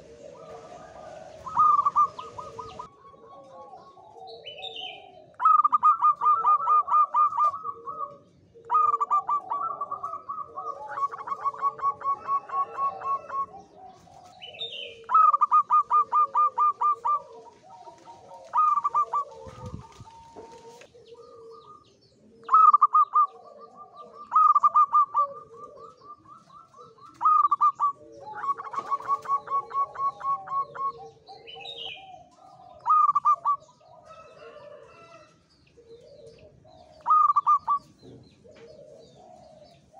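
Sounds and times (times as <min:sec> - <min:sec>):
dove cooing: 0:00.0 - 0:39.9
low bird calls: 0:00.0 - 0:39.9
high bird chirp: 0:22.4 - 0:32.1, 0:37.0 - 0:39.1.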